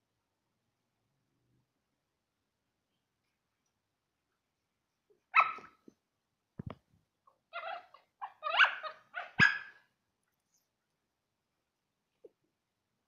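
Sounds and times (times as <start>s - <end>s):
dogs barking and growling: 7.5s - 9.8s.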